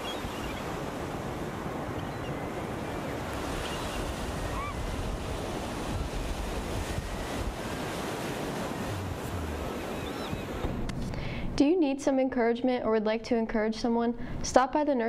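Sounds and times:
waves washing onto beach: 0:00.0 - 0:10.9
wind on microphone: 0:00.0 - 0:11.6.

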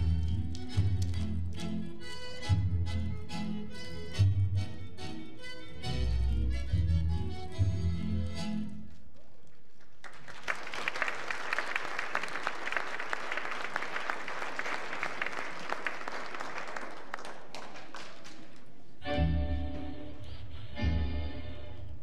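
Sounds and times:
audience applauding: 0:09.8 - 0:18.8.

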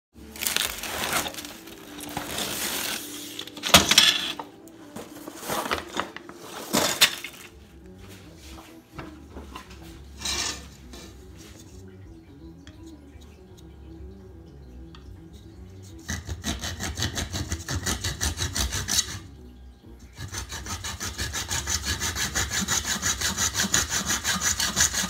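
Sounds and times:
packing material crinkling: 0:00.2 - 0:04.3.

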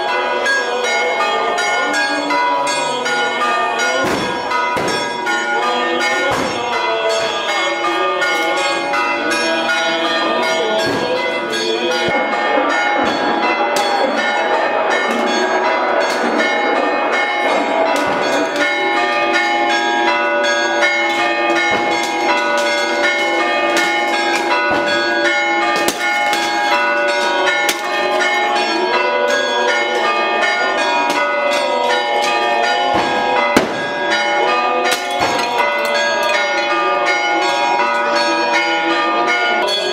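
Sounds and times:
church bells pealing: 0:00.0 - 0:39.9
clay pots smashing on stone: 0:34.9 - 0:35.9.

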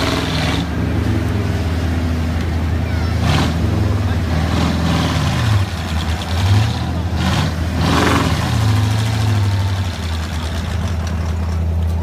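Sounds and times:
truck engine revving: 0:00.0 - 0:12.0.

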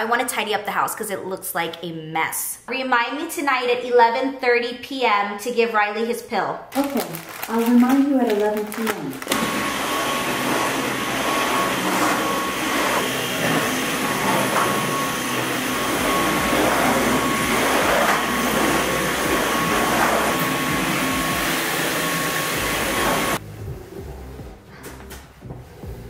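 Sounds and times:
vacuum cleaner running: 0:07.1 - 0:23.4.

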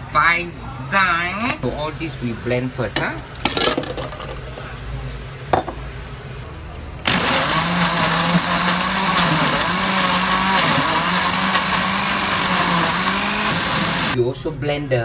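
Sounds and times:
blender motor chopping: 0:07.0 - 0:14.2.

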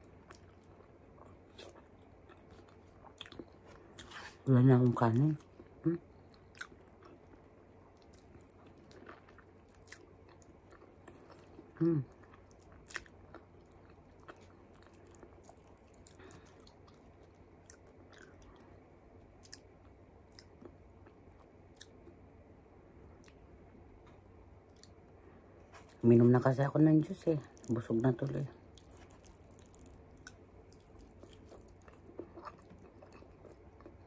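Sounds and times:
person chewing food: 0:00.0 - 0:04.5, 0:05.2 - 0:22.2, 0:23.1 - 0:26.0, 0:27.5 - 0:34.0
person humming: 0:11.8 - 0:12.1.

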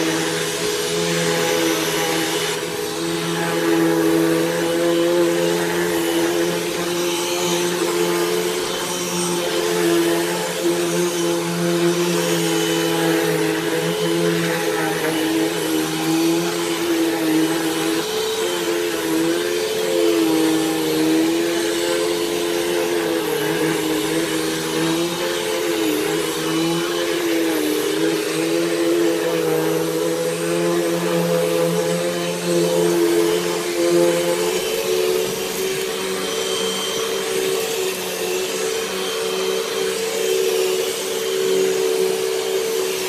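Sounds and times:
vacuum cleaner running: 0:00.0 - 0:43.0.

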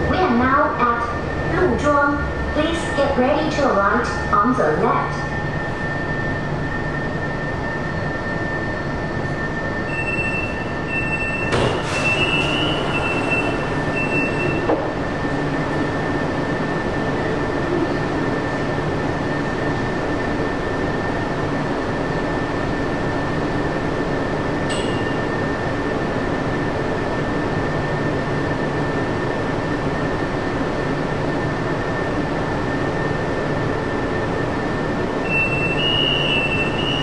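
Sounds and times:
train running rumble: 0:00.0 - 0:37.0
train motor whine: 0:05.4 - 0:16.4, 0:35.2 - 0:37.0.

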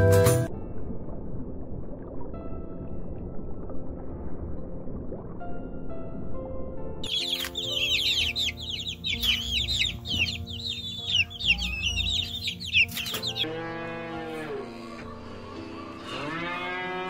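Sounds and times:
soft background music: 0:00.0 - 0:17.0
chicks peeping: 0:07.0 - 0:13.5.

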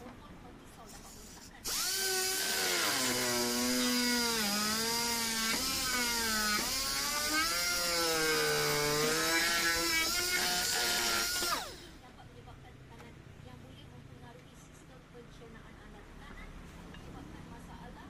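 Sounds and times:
rotary tool grinding plastic: 0:01.1 - 0:11.8.

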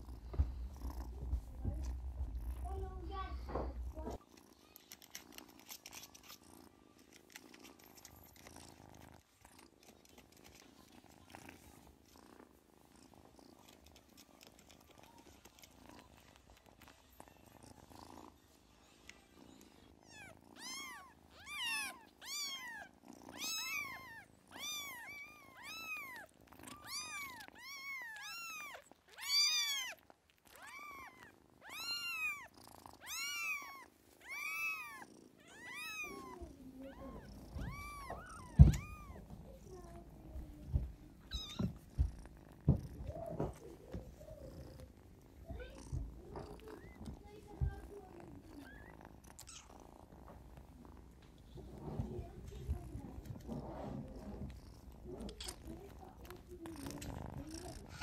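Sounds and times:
faint purring: 0:00.0 - 0:58.0
kitten mewing: 0:30.6 - 0:42.1.

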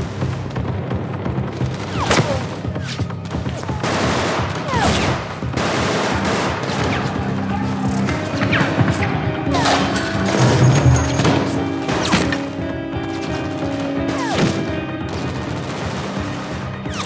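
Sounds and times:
low music drone: 0:00.0 - 0:17.0
automatic gunfire: 0:01.6 - 0:07.5, 0:13.2 - 0:17.0.

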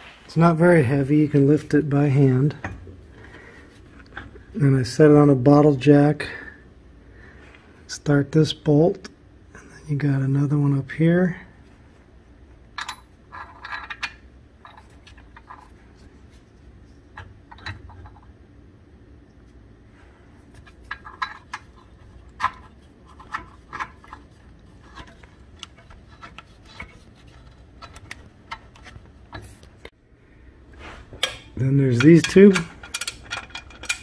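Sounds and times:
faint low hum: 0:00.2 - 0:34.0
metallic clicks of bolts: 0:31.2 - 0:34.0.

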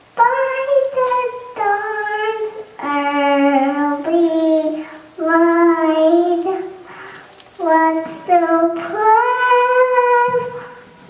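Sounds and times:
child singing into microphone: 0:00.0 - 0:11.0
short breaths: 0:04.8 - 0:05.1, 0:06.8 - 0:07.5, 0:10.5 - 0:11.0.

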